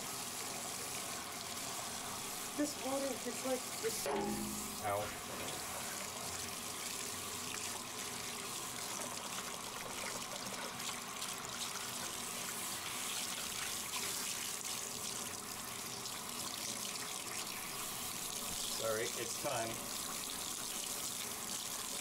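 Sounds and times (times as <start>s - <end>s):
shower head spraying water: 1.6s - 6.4s.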